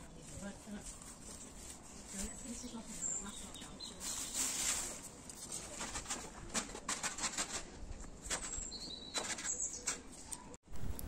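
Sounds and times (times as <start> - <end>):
birds calling: 2.3 - 4.8, 8.4 - 10.5.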